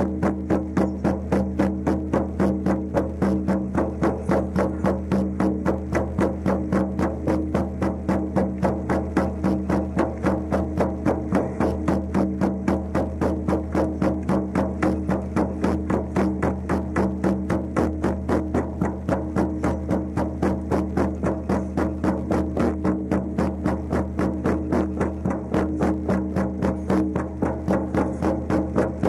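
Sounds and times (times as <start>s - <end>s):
frame drums beaten in rhythm: 0.0s - 29.0s.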